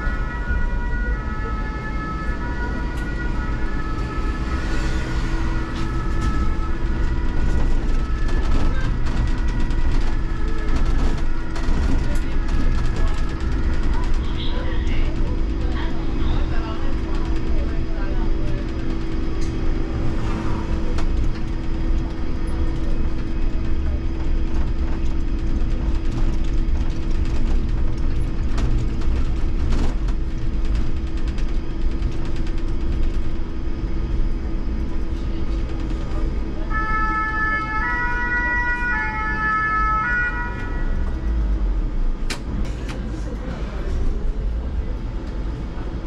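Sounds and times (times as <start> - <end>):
two-tone fire engine siren: 0.0 - 14.9, 36.2 - 41.6
trolleybus low rumble: 0.0 - 46.0.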